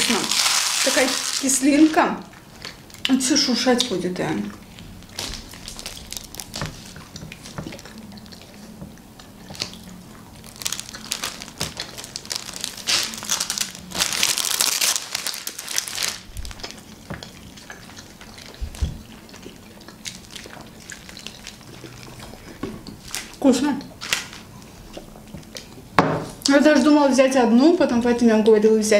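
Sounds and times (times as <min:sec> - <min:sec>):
plastic film crinkling: 0:00.0 - 0:02.0, 0:04.7 - 0:07.9, 0:09.5 - 0:17.2, 0:20.0 - 0:25.0.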